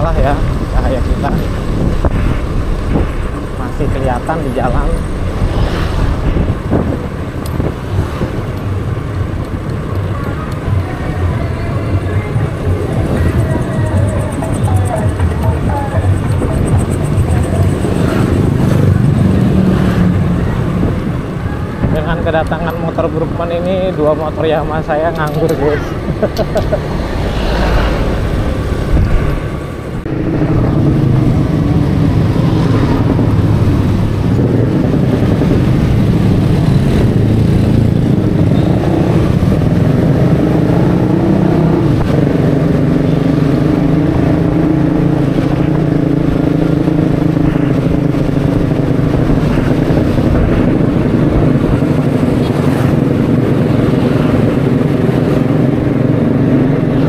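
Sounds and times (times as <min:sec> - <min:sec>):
road and wind noise: 0:00.0 - 0:57.0.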